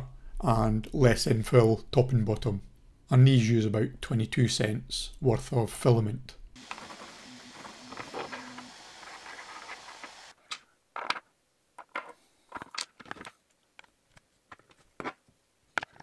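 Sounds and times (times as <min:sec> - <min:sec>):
steady hiss: 0:06.6 - 0:10.4.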